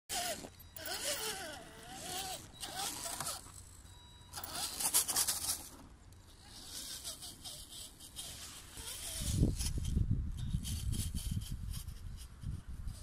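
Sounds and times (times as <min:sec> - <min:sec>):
electric motor whining: 0:00.1 - 0:03.7, 0:04.3 - 0:05.7, 0:06.4 - 0:09.9.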